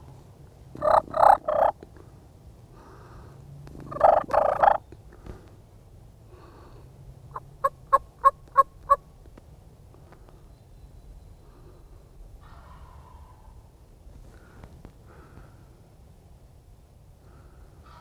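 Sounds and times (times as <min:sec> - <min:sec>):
turkey gobbling: 0:00.8 - 0:01.8, 0:03.8 - 0:04.8, 0:07.3 - 0:09.0, 0:12.4 - 0:13.6.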